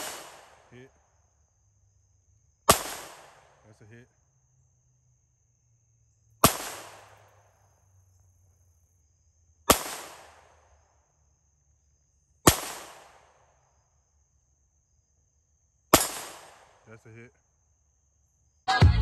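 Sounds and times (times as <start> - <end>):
handgun shots with echo: 0.0 - 0.7, 2.7 - 3.5, 6.4 - 7.3, 9.7 - 10.5, 12.5 - 13.3, 16.0 - 16.8.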